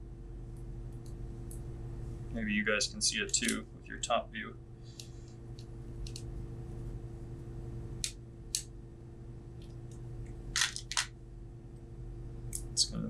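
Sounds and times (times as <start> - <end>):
steady low hum: 0.0 - 13.0
small parts clicking on a workbench: 5.0 - 6.3, 10.6 - 11.1.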